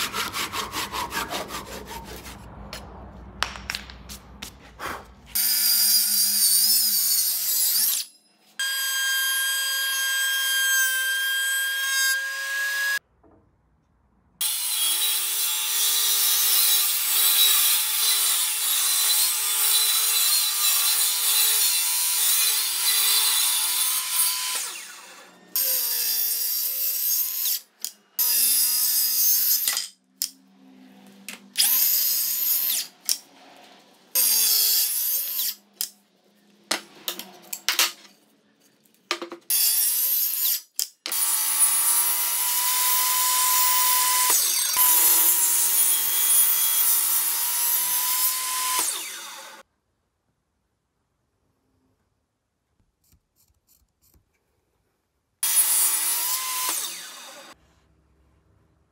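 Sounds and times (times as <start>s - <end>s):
table saw cutting wood: 0.0s - 2.5s, 5.3s - 13.0s, 14.4s - 35.9s, 39.5s - 49.6s, 55.4s - 57.6s.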